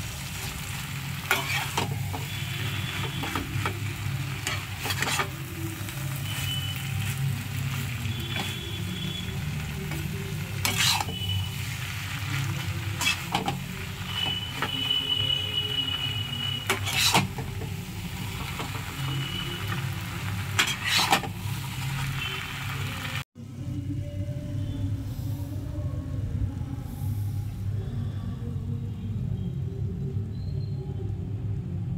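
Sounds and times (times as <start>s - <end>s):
noodles sizzling in frying pan: 0.0s - 23.2s
spatula scraping and knocking pan: 1.3s - 3.8s, 4.4s - 5.4s, 10.6s - 11.2s, 16.7s - 17.7s, 20.6s - 21.4s.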